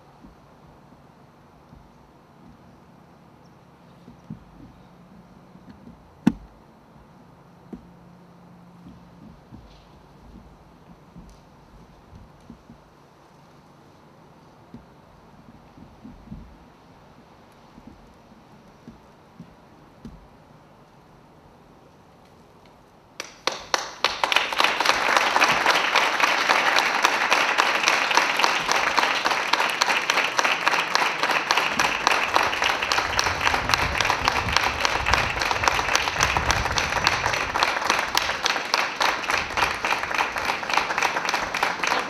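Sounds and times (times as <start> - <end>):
crowd applauding: 23.2 - 42.0.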